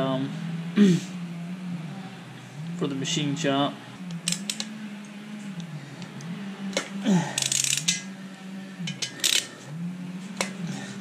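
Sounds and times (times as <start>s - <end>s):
low wavering hum: 0.0s - 11.0s
ratchet wrench clicking: 4.1s - 4.7s, 6.8s - 8.1s, 8.8s - 9.5s.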